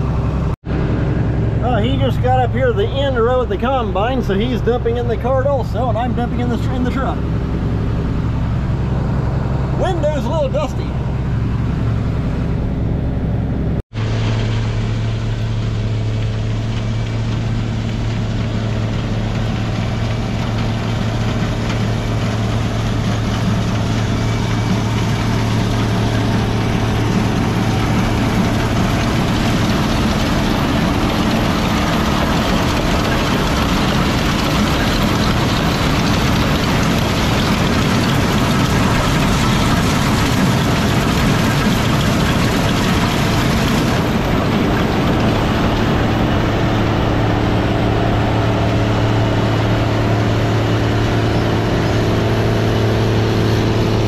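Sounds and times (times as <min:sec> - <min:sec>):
combine harvester engine drone: 0:00.0 - 0:54.0
threshing machine rush: 0:14.0 - 0:54.0.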